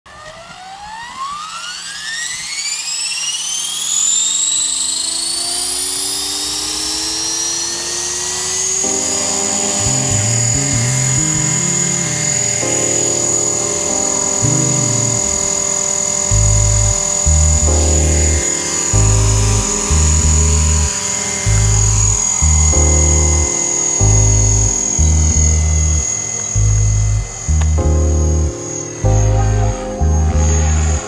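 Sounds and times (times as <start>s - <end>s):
rc helicopter motor whine: 0.1s - 27.8s
background music: 8.8s - 31.0s.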